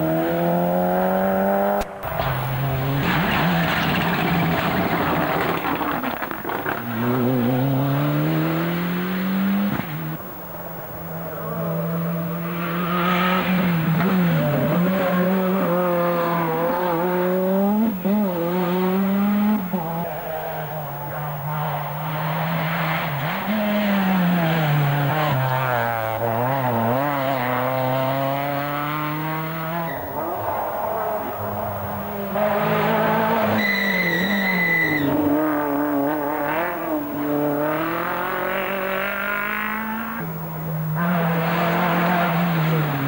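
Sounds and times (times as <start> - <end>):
rally car engines passing: 0.0 - 43.0
brief high squeal: 33.5 - 35.2.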